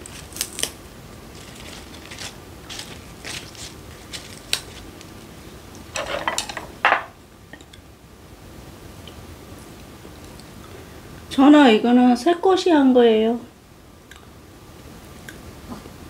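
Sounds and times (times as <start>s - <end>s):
lettuce leaves rustling: 0.0s - 6.6s
chopsticks clattering: 5.9s - 7.7s
tableware clicking: 6.0s - 7.7s.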